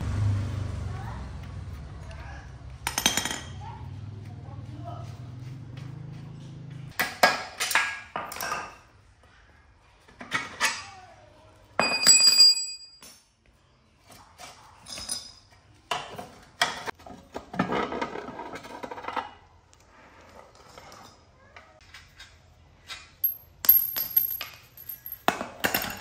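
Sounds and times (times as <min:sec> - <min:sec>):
metal parts clanking on tiled floor: 0:02.8 - 0:03.7, 0:07.0 - 0:08.9, 0:11.8 - 0:13.3, 0:14.4 - 0:19.4, 0:20.2 - 0:26.0.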